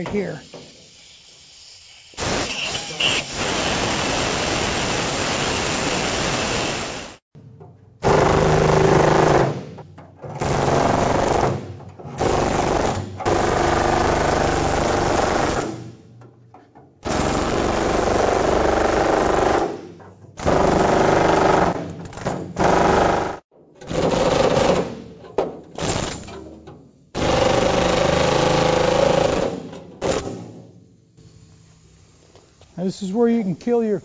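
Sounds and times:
power tool cutting sheet metal: 2.2 - 7.2.

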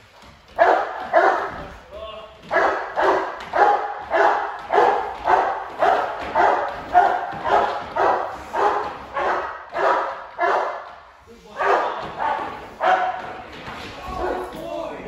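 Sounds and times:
large dog barking loudly: 0.6 - 1.7, 2.5 - 10.9, 11.6 - 13.3.

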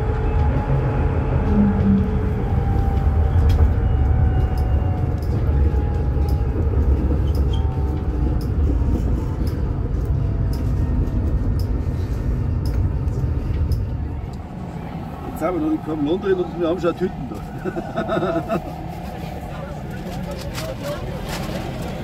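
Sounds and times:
faint whining tones: 0.0 - 11.6
vehicle interior rumble: 0.0 - 22.0.

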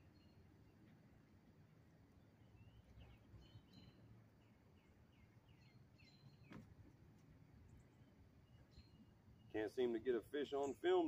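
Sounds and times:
bird chirping: 0.0 - 0.9, 2.2 - 6.6, 7.6 - 11.0.

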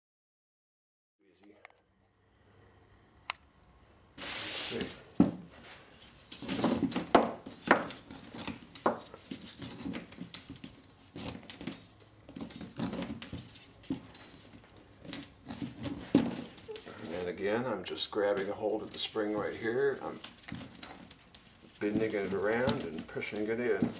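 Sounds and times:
steel spring scraping and clicking: 5.9 - 17.5, 18.2 - 23.9.

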